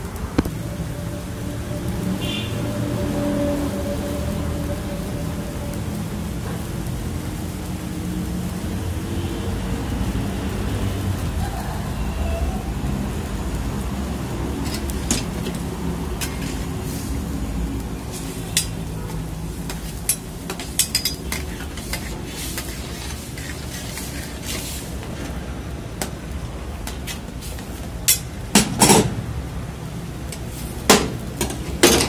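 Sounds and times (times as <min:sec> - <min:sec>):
broth boiling in a wok: 0:00.0 - 0:32.0
metal utensils clinking on wok: 0:14.6 - 0:16.9, 0:18.0 - 0:24.8, 0:28.0 - 0:29.2, 0:30.3 - 0:32.0.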